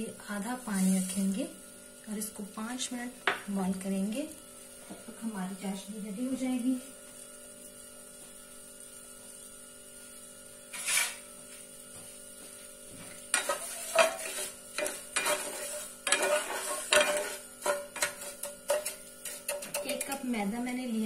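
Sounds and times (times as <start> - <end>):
spatula scraping saucepan bottom: 10.7 - 11.3, 13.2 - 20.3.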